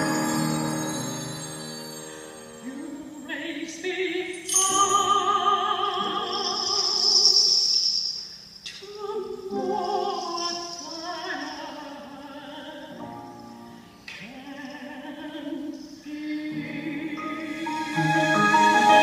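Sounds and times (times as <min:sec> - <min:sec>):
violin: 0:00.0 - 0:03.1, 0:16.3 - 0:19.0
woman singing slow ballad: 0:02.5 - 0:07.8, 0:08.7 - 0:13.4, 0:14.1 - 0:18.4.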